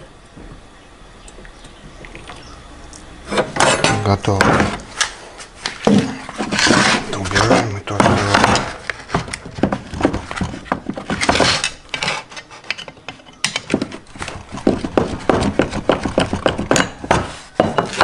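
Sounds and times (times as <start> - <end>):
metal mold scraping: 3.2 - 4.8, 6.0 - 18.0
metal mold clicking and knocking: 14.6 - 18.0.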